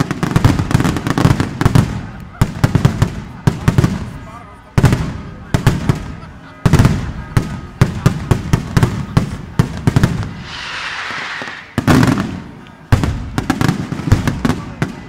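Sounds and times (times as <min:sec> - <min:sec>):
firecrackers banging: 0:00.0 - 0:15.0
hissing: 0:10.2 - 0:12.6.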